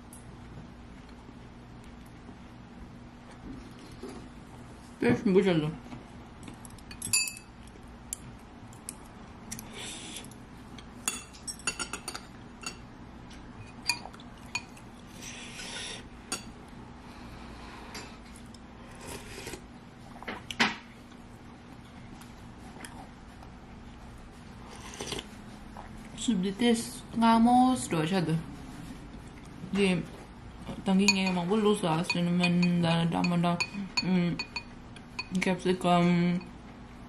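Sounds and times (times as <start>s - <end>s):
spoon and chopsticks clinking on bowl: 6.9s - 7.5s, 31.0s - 35.4s.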